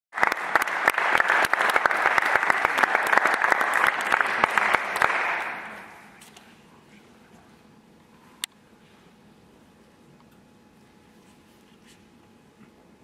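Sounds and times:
audience applauding: 0:00.1 - 0:06.0.

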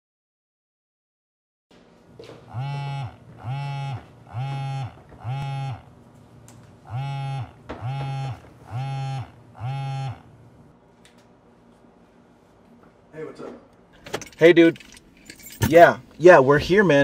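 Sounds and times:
mobile phone buzzing: 0:02.5 - 0:06.0, 0:06.8 - 0:10.4.

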